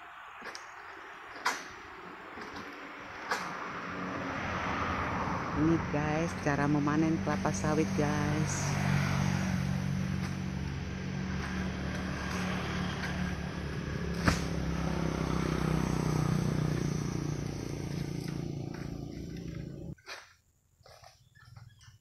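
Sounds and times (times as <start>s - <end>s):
motor engine humming: 5.6s - 20.0s.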